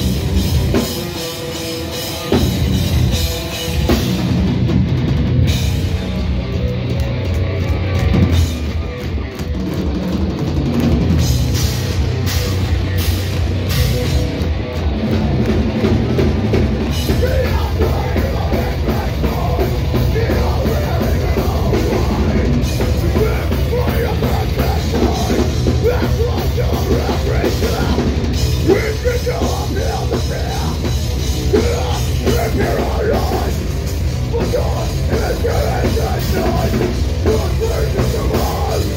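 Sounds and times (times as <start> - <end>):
bass guitar: 0.0 - 38.9
distorted electric guitars: 0.0 - 38.9
pounding drum kit: 0.0 - 38.9
vocalist screaming: 31.4 - 33.6.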